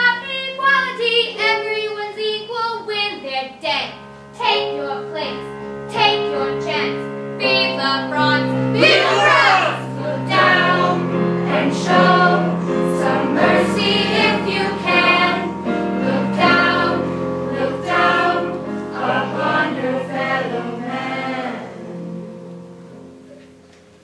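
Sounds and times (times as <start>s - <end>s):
choir singing: 5.9s - 22.2s.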